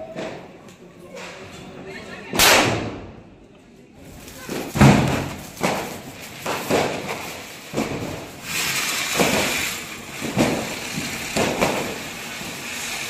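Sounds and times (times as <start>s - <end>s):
firecrackers banging: 0.0s - 0.6s, 2.3s - 3.3s, 4.0s - 13.0s
firecracker hissing: 4.0s - 13.0s.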